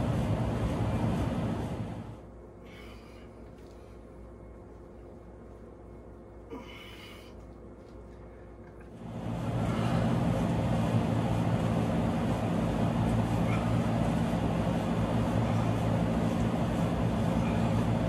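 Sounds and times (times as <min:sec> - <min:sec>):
machine engine droning with hiss: 0:00.0 - 0:03.3, 0:09.0 - 0:18.0.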